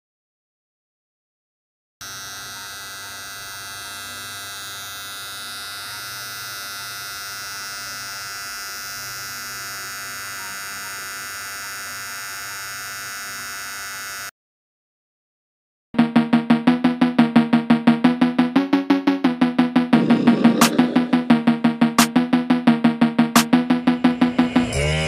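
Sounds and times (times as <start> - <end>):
toy motor whining: 2.0 - 14.3.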